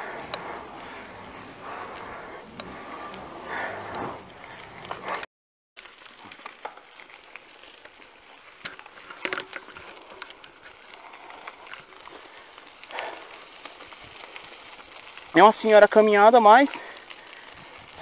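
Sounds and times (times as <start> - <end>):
bicycle tyres crackling on grit: 0.0 - 18.0
bike clicks and rattles: 0.0 - 18.0.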